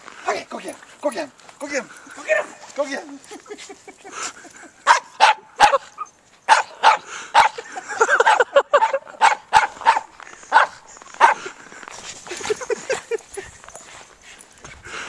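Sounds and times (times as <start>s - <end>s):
small dogs barking and yipping: 4.8s - 11.5s.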